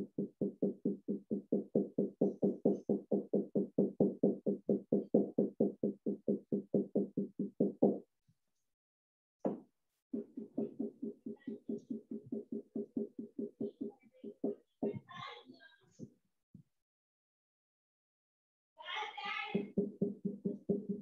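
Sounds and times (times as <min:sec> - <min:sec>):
marker rubbing on whiteboard: 0:10.1 - 0:15.2.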